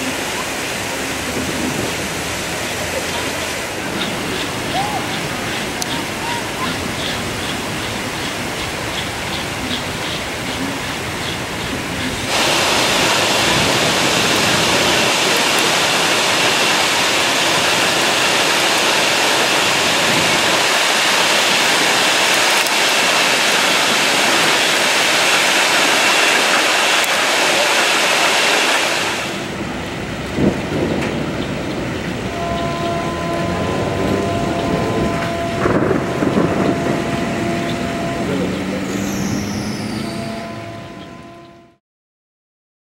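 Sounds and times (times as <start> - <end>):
torrential rain pouring: 0.0 - 41.4
faint voices: 2.5 - 7.0, 33.7 - 39.2
steady tones: 12.0 - 41.8.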